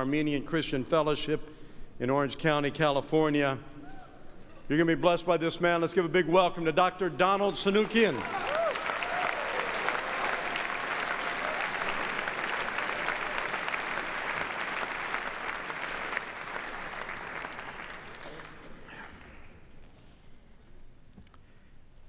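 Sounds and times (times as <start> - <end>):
audience applauding: 7.7 - 19.6.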